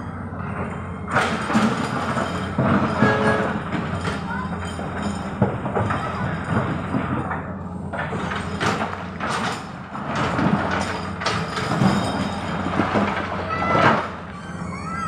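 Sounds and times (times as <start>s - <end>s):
excavator diesel engine running: 0.0s - 15.0s.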